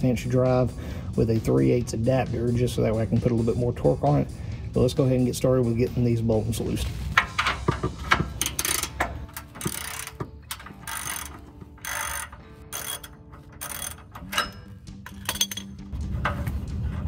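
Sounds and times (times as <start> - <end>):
ratchet wrench clicking: 7.2 - 15.8.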